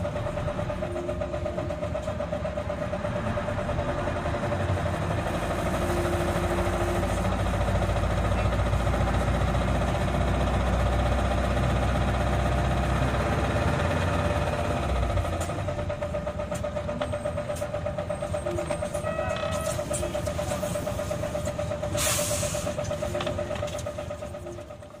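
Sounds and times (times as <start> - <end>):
bus engine rumble: 0.0 - 25.0
air hiss: 22.0 - 22.7.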